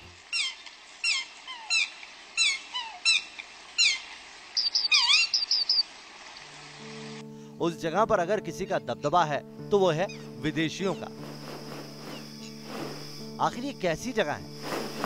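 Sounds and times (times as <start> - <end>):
bird chirping: 4.6 - 5.8
steady hiss: 10.2 - 15.0.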